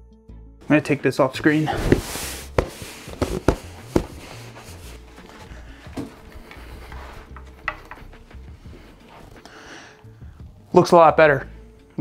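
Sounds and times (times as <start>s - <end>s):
knocks of box and wood pieces: 1.7s - 4.4s.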